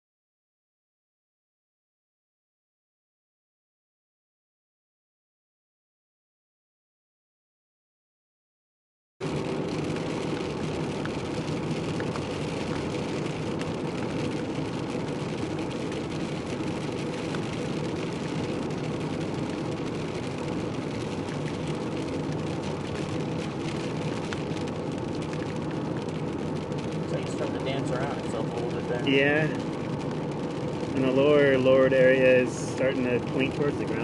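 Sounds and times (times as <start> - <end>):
raindrops tapping on windshield: 9.2 - 34.0
vehicle engine hum from inside: 9.2 - 34.0.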